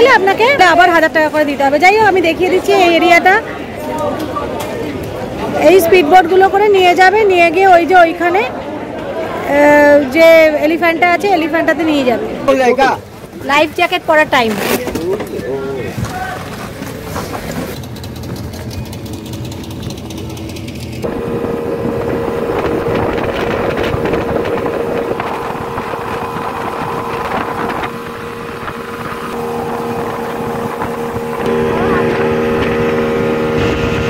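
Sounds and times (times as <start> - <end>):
outboard motor running: 17.7 - 34.0
water rushing: 21.0 - 34.0.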